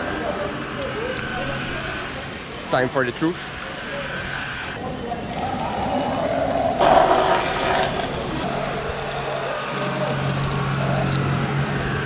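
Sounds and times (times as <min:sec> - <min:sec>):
hose water spraying on steel hull: 0:05.4 - 0:11.2.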